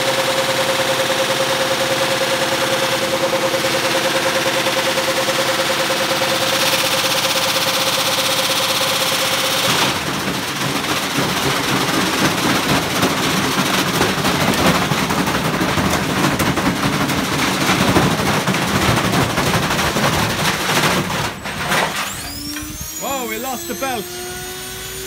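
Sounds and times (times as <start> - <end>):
bricks banging in washing machines: 10.0 - 22.0
washing machine whines: 21.2 - 25.0.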